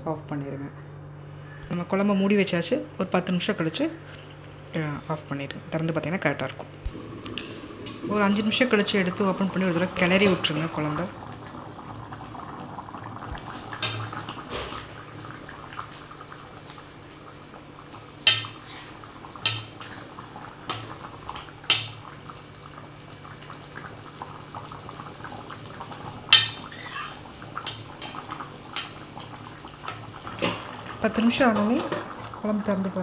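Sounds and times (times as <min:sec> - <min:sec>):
faint simmering: 0:03.4 - 0:33.0
metal ladle scraping a pan: 0:18.5 - 0:19.0, 0:26.4 - 0:27.2.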